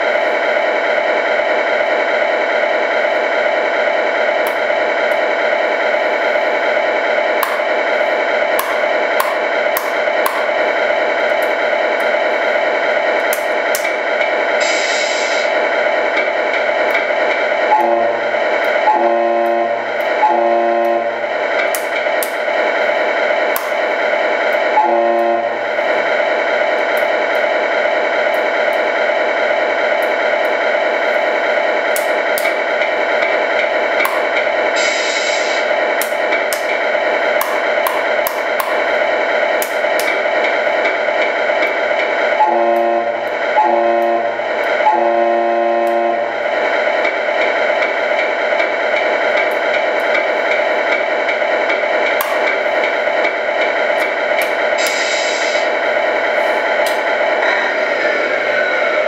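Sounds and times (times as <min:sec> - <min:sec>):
truck air horn blasts: 0:17.8 - 0:18.2, 0:18.9 - 0:21.1, 0:24.8 - 0:25.6, 0:42.4 - 0:46.3
simulated diesel engine idling: 0:33.8 - 0:36.7, 0:54.7 - 0:56.6.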